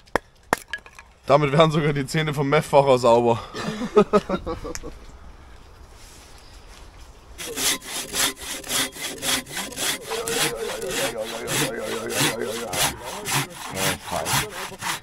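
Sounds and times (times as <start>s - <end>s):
hand saw cutting log: 7.4s - 15.0s.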